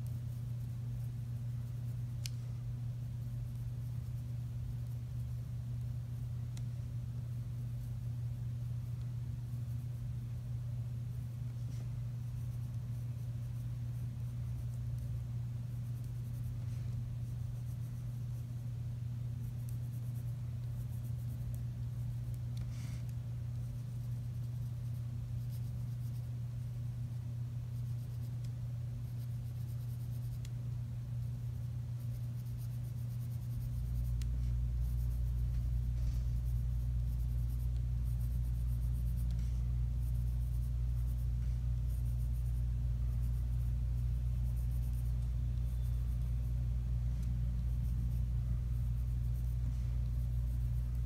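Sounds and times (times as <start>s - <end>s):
low hum: 0.0s - 51.0s
pen scratching on paper: 32.0s - 46.6s, 47.6s - 51.0s.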